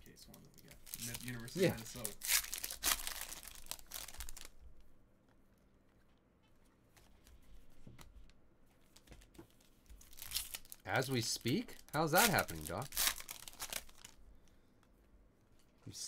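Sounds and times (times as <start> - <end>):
foil wrapper tearing and crinkling: 0.8 - 4.5, 10.0 - 14.2.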